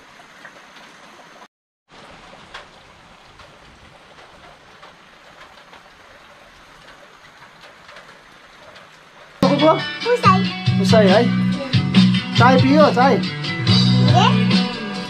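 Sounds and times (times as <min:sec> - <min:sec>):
light rain on plants: 0:00.0 - 0:11.3.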